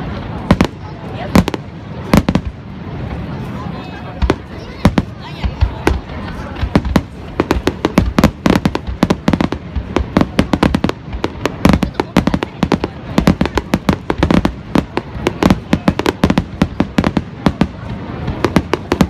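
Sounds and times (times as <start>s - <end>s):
deep fireworks booms: 0.0s - 19.0s
fireworks bangs and crackles: 0.0s - 19.0s.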